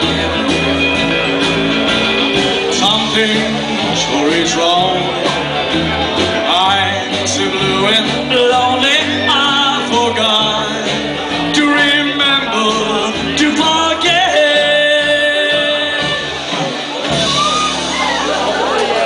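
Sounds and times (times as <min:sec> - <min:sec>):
acoustic guitar: 0:00.0 - 0:19.0
upright bass: 0:00.0 - 0:19.0
man singing: 0:02.1 - 0:16.8.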